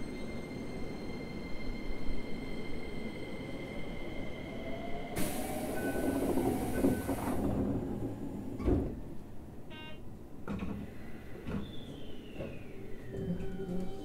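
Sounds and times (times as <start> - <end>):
train wheels rumbling on track: 5.2 - 9.3.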